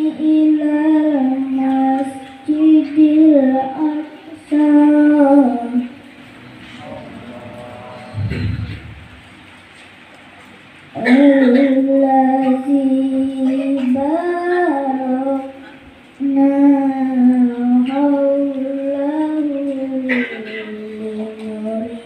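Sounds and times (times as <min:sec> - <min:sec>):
child reciting melodically: 0:00.0 - 0:06.2, 0:10.9 - 0:22.0.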